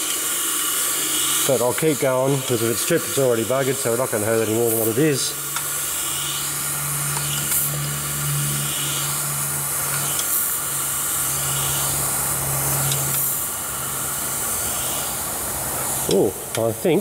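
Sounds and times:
low machine hum: 0.0 - 17.0
steady hiss: 0.0 - 17.0
spanner clicking on metal: 5.4 - 6.5, 7.1 - 8.0, 9.8 - 10.6, 12.8 - 13.4.

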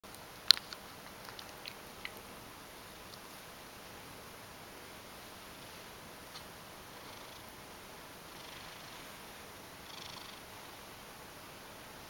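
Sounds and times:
cat kneading and licking clicks: 0.1 - 2.3.

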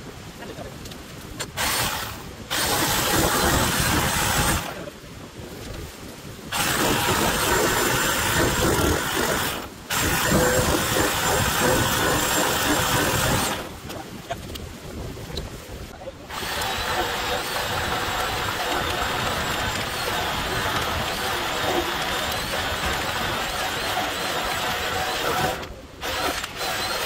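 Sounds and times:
power saw cutting: 1.5 - 4.8, 6.5 - 13.7, 16.3 - 27.0.

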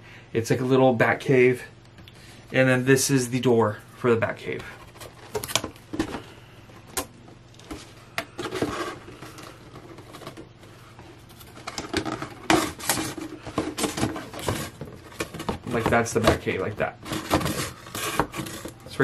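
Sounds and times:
cardboard box rustling and scraping: 7.7 - 10.5, 11.3 - 18.9.

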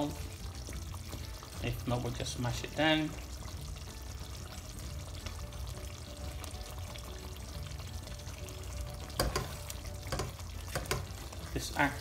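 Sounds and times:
curry bubbling in pot: 0.0 - 12.0
soft background music: 0.0 - 12.0
spatula stirring: 8.9 - 11.8.

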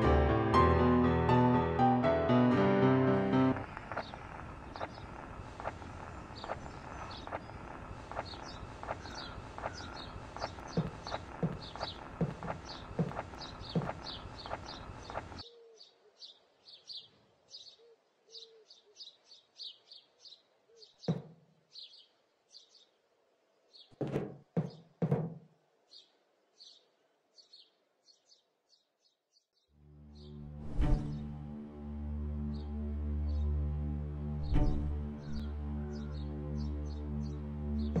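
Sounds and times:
music: 0.0 - 3.6, 29.8 - 38.0
dense noise with regular knocks: 3.5 - 15.4, 23.9 - 25.6, 34.4 - 35.4
small birds chirping: 3.5 - 30.4, 34.4 - 38.0
dull thumps: 10.2 - 15.4, 23.9 - 25.5.

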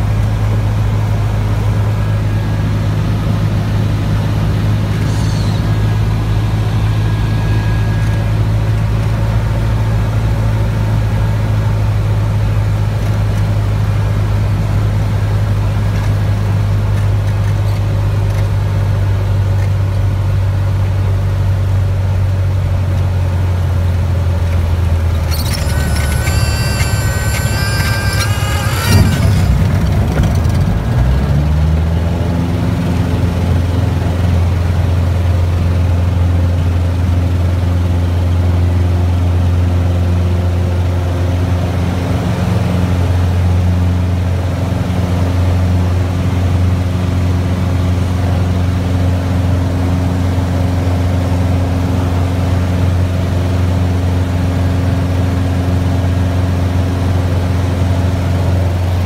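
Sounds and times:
high multi-tone whine: 0.0 - 10.0, 24.8 - 32.3
propeller airplane engine drone: 0.0 - 59.0.

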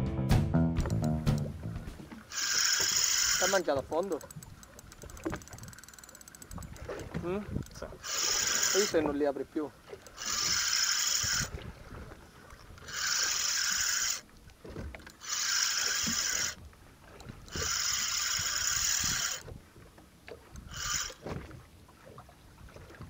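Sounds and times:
fishing reel buzzing: 2.3 - 9.1, 10.0 - 11.6, 12.8 - 14.3, 15.0 - 16.6, 17.2 - 19.5, 20.5 - 21.3.

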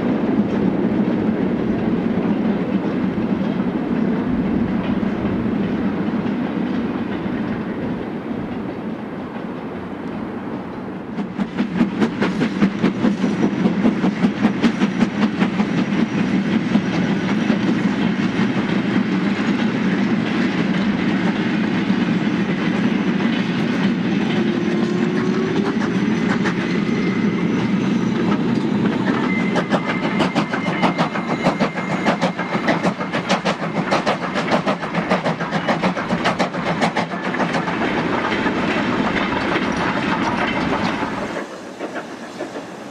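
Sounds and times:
steady train rumble: 0.0 - 42.9
wagon wheels clickety-clack: 11.2 - 27.1, 28.0 - 42.6.

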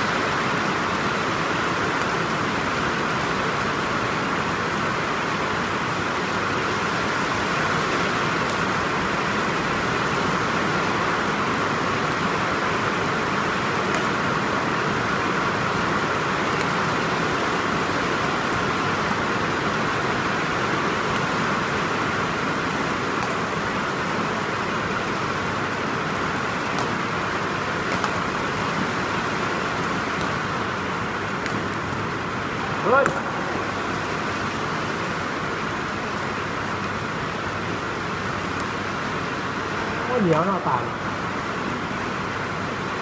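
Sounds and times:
hall background noise: 0.0 - 43.0
rackets striking shuttlecock: 1.9 - 3.4, 8.3 - 9.0, 11.4 - 22.2, 23.1 - 23.6, 26.5 - 32.1, 32.8 - 33.7, 38.5 - 39.0, 40.3 - 40.6.

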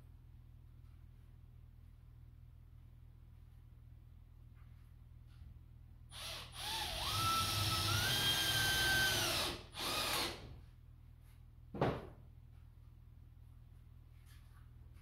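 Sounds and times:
power drill motor whine: 6.1 - 10.5
thump: 11.7 - 12.2.

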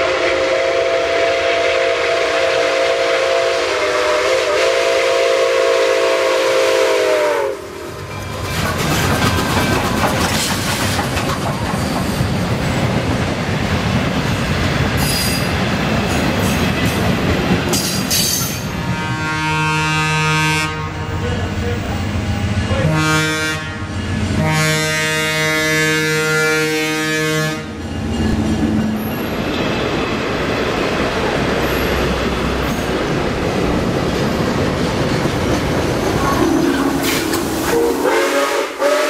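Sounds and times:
steam whistle blast: 0.0 - 7.9, 18.8 - 21.1, 22.8 - 27.7, 37.0 - 39.0
locomotive rumbling past: 0.0 - 39.0
train wheels clicking on rail joints: 7.9 - 18.8, 27.7 - 38.1.

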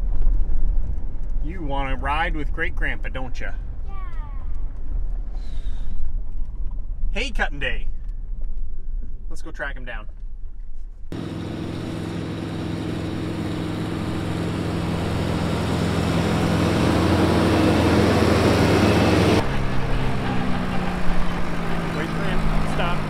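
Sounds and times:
tractor engine running: 11.1 - 23.0.

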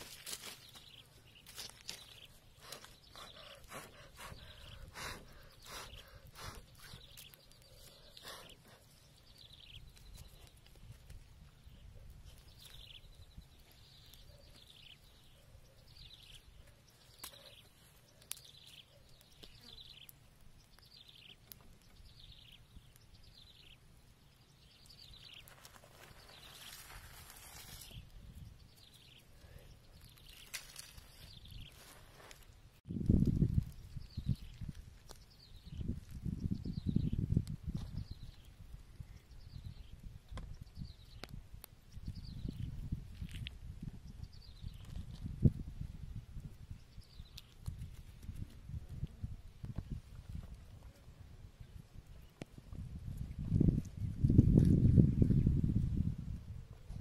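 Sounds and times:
bird chirping: 0.5 - 10.7, 11.6 - 27.0.

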